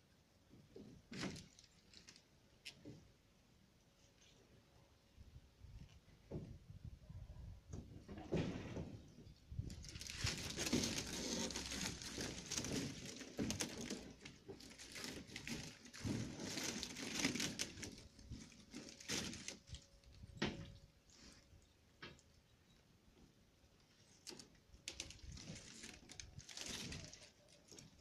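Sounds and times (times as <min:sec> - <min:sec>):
plastic sheet crinkling: 0:01.1 - 0:02.8, 0:09.6 - 0:21.4, 0:23.8 - 0:28.0.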